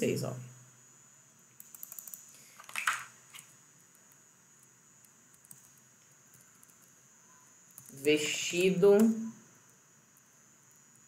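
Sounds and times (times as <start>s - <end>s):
computer keyboard clicks: 1.6s - 3.0s.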